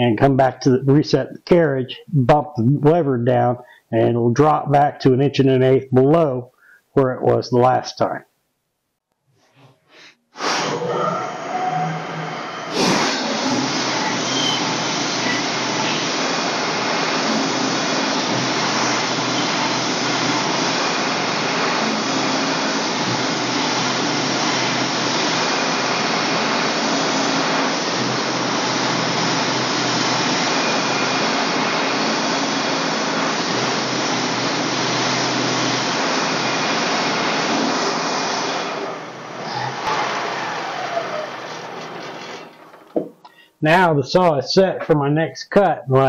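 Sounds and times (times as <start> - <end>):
sawmill engine humming: 10.4 - 43.1
band blade sawing wood: 17.1 - 25.5.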